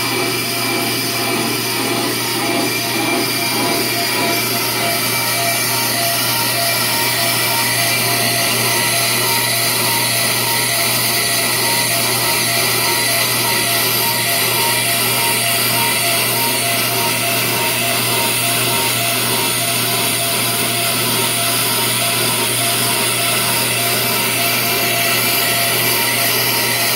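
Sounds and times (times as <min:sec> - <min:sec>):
brake lathe cutting spinning rotor: 0:00.0 - 0:26.9.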